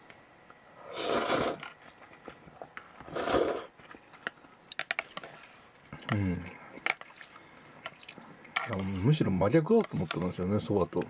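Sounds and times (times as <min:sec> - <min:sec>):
slurping noodle soup: 0:00.8 - 0:01.7, 0:03.0 - 0:03.7.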